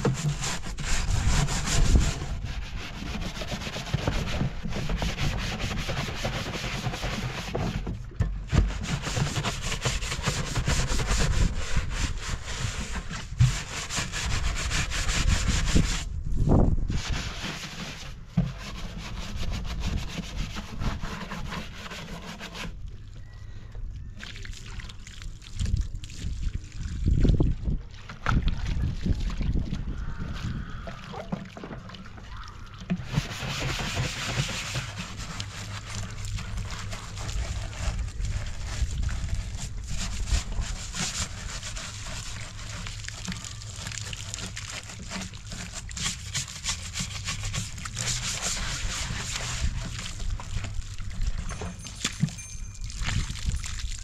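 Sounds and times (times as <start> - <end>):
rasping rubbing strokes: 0.0 - 7.9, 8.5 - 16.1, 16.9 - 22.7, 33.0 - 50.4.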